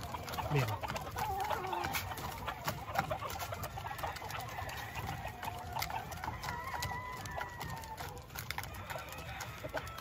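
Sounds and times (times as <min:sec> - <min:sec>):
rooster crowing: 0:05.8 - 0:10.0.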